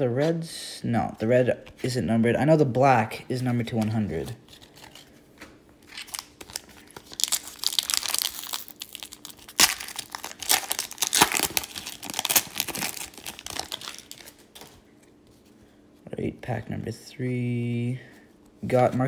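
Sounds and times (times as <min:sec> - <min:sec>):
foil wrapper tearing and crinkling: 0:05.9 - 0:14.8.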